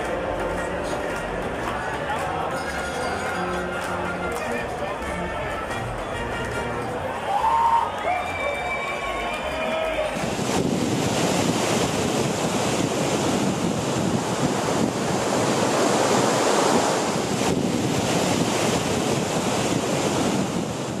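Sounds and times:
river rushing over stones: 0:07.1 - 0:21.0.

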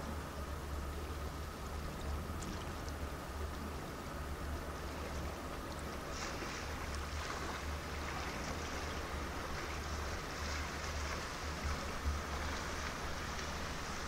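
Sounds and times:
water washing at stone bank: 0:04.7 - 0:14.0.

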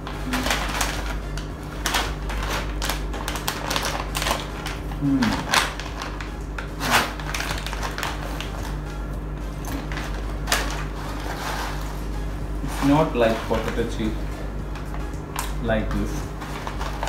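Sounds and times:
plastic snack packet crinkling: 0:00.1 - 0:09.1, 0:14.8 - 0:17.0.

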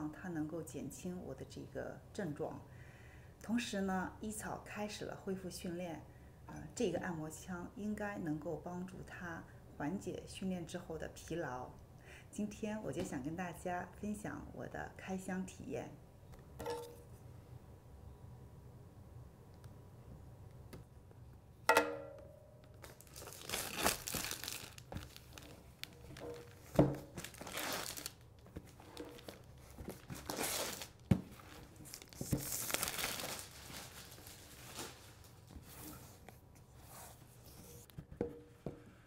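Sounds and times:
plastic film crinkling: 0:22.7 - 0:35.6.

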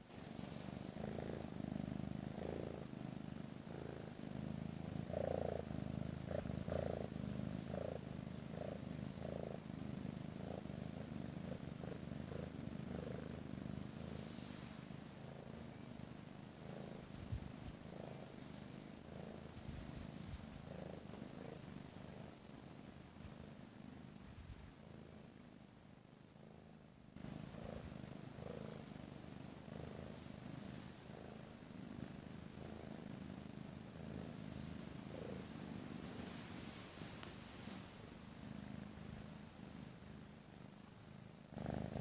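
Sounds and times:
kitten purring: 0:00.0 - 0:42.0.

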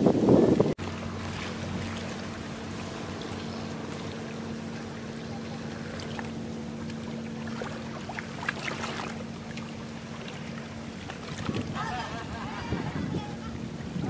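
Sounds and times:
ship engine hum: 0:00.0 - 0:14.0.

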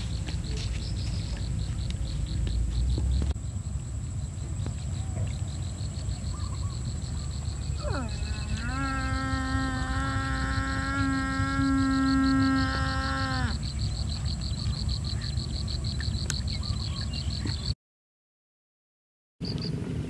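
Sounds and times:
long low animal call: 0:06.2 - 0:14.2.

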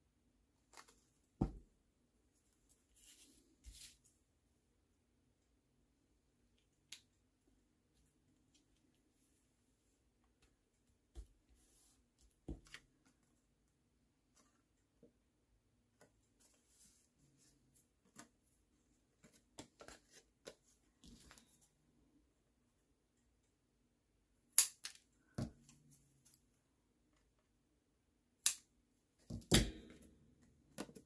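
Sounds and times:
scissors snapping through card: 0:24.6 - 0:25.0.

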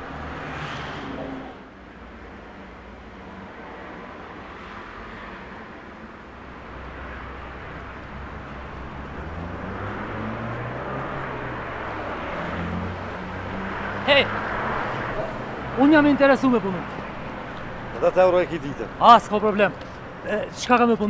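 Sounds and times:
street traffic: 0:00.0 - 0:21.0
low vehicle engine hum: 0:05.9 - 0:20.6.

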